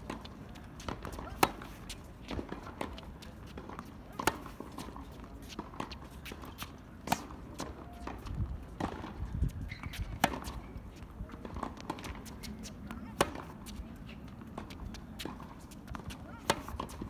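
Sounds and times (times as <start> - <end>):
racket striking tennis ball: 0.8 - 3.0, 3.6 - 5.0, 5.6 - 9.2, 9.8 - 10.7, 11.4 - 13.8, 14.4 - 17.0.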